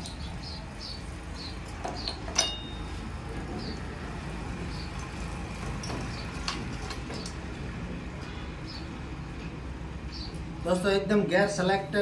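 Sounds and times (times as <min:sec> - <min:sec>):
metal engine parts clinking: 0:01.6 - 0:03.0, 0:04.8 - 0:07.5.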